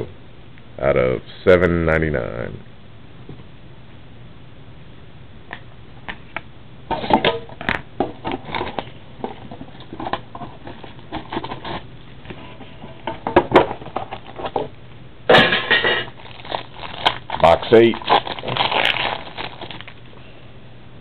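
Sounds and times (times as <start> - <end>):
card pack crinkling: 16.1 - 20.1.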